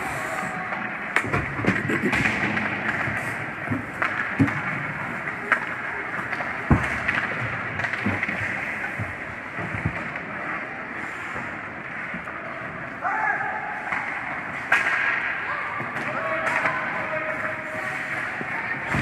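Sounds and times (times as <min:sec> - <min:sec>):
hockey sticks clacking on puck: 0:00.7 - 0:10.7, 0:13.8 - 0:19.0.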